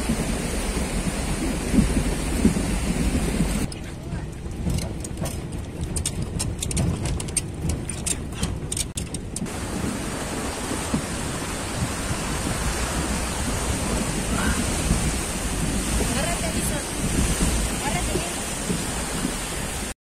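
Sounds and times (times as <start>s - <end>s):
vehicle driving through floodwater: 0.0s - 20.0s
tyres on gravel road: 1.0s - 14.2s.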